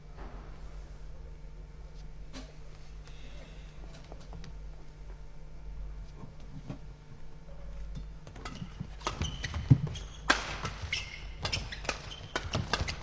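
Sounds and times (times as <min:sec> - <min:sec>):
low hall hum: 0:00.0 - 0:13.0
rackets striking shuttlecock: 0:08.4 - 0:13.0
shoe squeaks on court: 0:08.4 - 0:13.0.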